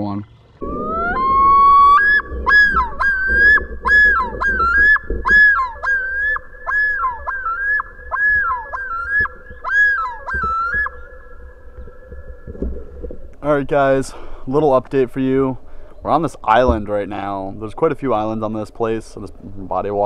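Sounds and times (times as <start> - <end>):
loon yodel: 0.6 - 14.0.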